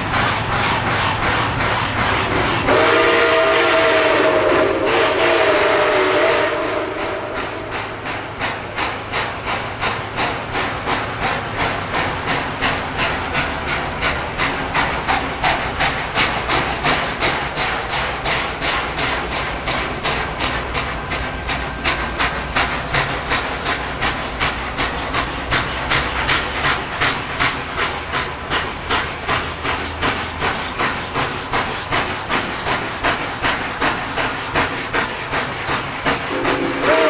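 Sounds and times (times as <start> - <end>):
rhythmic exhaust chuffs: 0.0 - 37.0
steam locomotive whistle: 2.7 - 8.0, 36.2 - 37.0.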